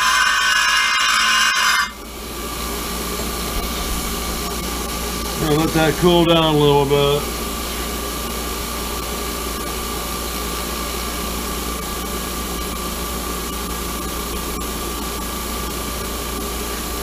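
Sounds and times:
bench grinder running: 0.0 - 11.4.

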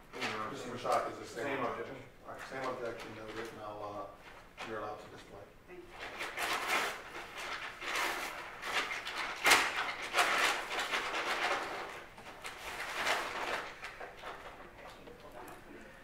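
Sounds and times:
paper bag rustling and crinkling: 6.0 - 15.3.

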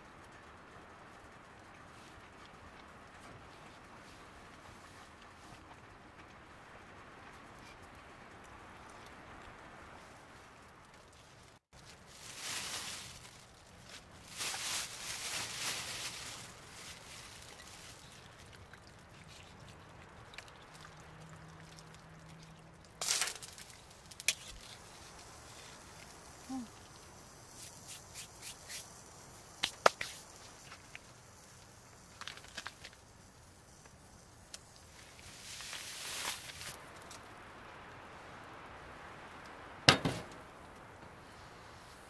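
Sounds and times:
plastic bag rustling: 11.8 - 18.4, 35.2 - 36.8.

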